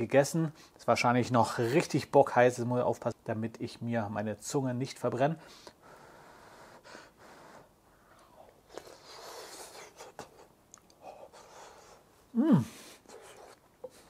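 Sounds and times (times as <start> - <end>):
soft chewing with mouth clicks: 8.1 - 12.0.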